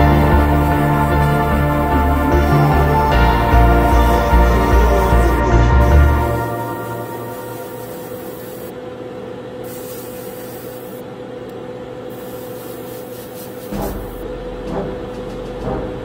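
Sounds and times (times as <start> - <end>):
airbrush spraying hiss: 0.0 - 8.7, 9.6 - 11.0, 12.1 - 14.3.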